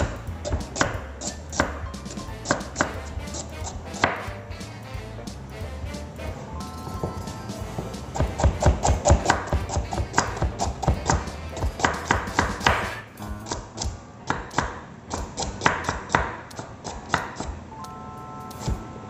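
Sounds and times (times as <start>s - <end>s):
knife chopping on cutting board: 0.4s - 4.4s, 7.0s - 17.5s.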